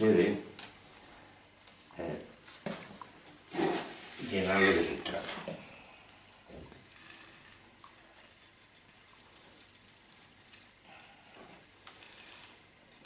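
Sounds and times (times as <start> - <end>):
granular soil poured into pot: 6.8 - 13.0.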